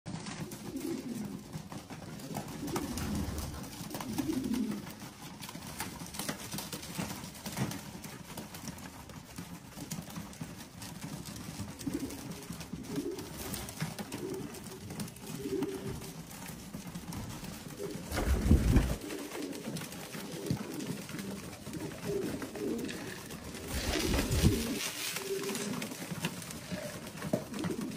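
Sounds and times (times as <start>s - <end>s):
pigeons cooing: 0.1s - 6.0s, 11.4s - 27.9s.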